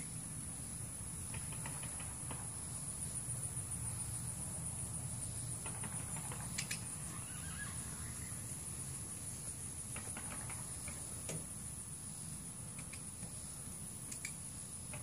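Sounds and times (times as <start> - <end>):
high-pitched insect chorus: 0.0 - 15.0
faint ticks: 12.7 - 13.4, 14.0 - 15.0
sharp click: 12.8 - 13.1, 14.1 - 15.0.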